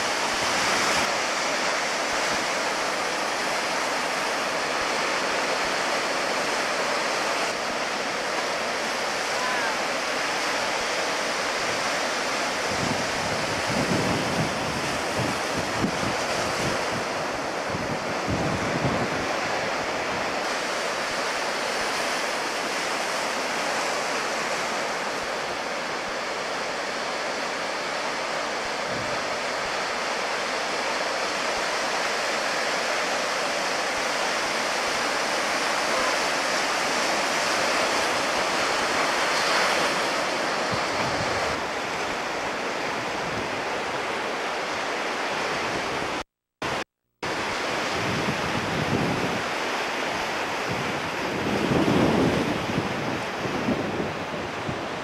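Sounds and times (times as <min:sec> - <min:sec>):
ocean surf breaking: 0:00.0 - 0:55.0
wind rumble on microphone: 0:12.6 - 0:20.4, 0:40.6 - 0:44.0, 0:45.6 - 0:49.6, 0:50.2 - 0:55.0.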